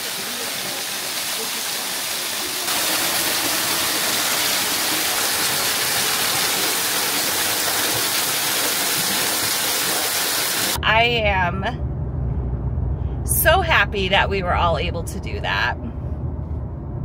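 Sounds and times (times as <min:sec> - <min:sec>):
waterfall pouring onto rocks: 0:00.0 - 0:10.8.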